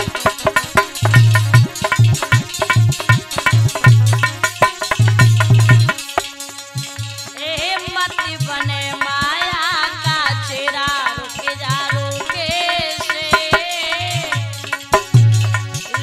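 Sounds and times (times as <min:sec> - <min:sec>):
hand drum beat: 0:00.0 - 0:16.0
woman singing: 0:07.4 - 0:14.6.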